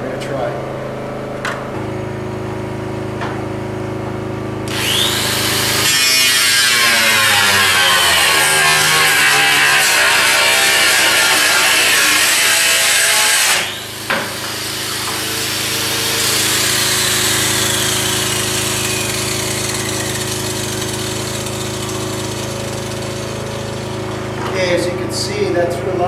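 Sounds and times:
angle grinder cutting sheet metal: 4.7 - 25.2
grinder disc spinning down: 4.7 - 25.5.

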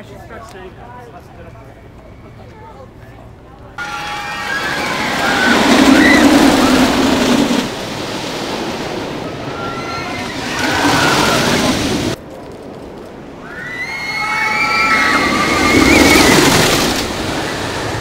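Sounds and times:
riders screaming: 3.8 - 7.6, 9.3 - 12.1, 13.4 - 18.0
roller coaster rumbling on wooden track: 3.8 - 18.0.

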